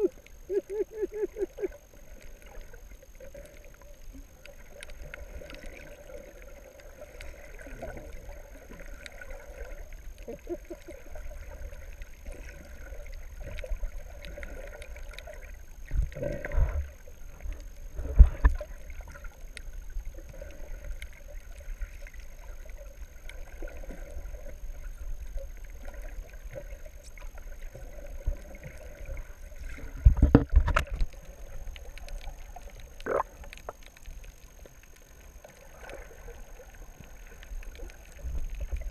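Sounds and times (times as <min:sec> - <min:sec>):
faint high whine: 0:00.0 - 0:38.9
muffled underwater water wash: 0:00.0 - 0:38.9
water sloshes and knocks: 0:29.7 - 0:31.2.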